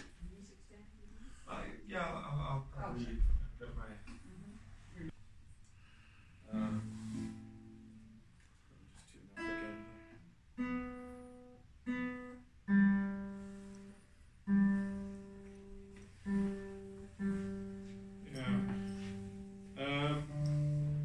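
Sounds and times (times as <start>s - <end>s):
acoustic guitar strokes: 5.9s - 8.2s, 9.4s - 21.0s.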